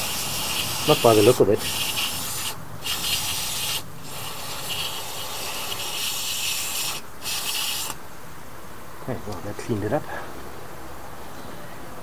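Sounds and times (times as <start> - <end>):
aerosol spray hissing: 0.0 - 8.0.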